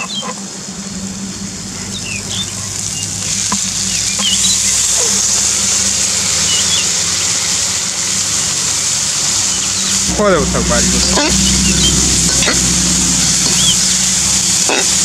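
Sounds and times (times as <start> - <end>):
birds chirping: 0.0 - 7.6
bamboo shoots sizzling in hot oil: 0.0 - 15.0
steady low hum: 0.3 - 8.9, 9.7 - 15.0.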